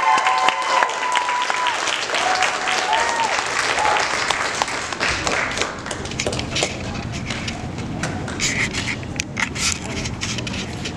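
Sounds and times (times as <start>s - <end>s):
audience applause: 0.0s - 8.5s
crowd voices: 0.0s - 10.9s.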